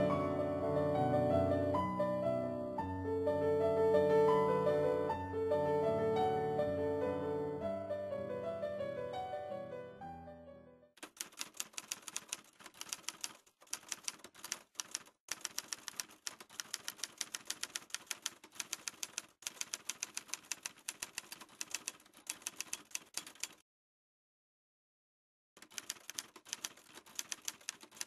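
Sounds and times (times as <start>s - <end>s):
typewriter keys striking: 11.0s - 23.6s, 25.6s - 28.0s.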